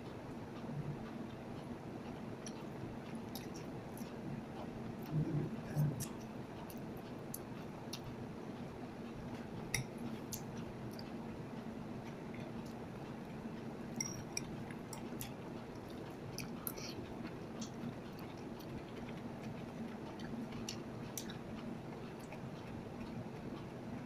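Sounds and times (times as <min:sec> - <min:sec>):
steady low hum: 0:00.0 - 0:24.0
person chewing: 0:14.0 - 0:23.1.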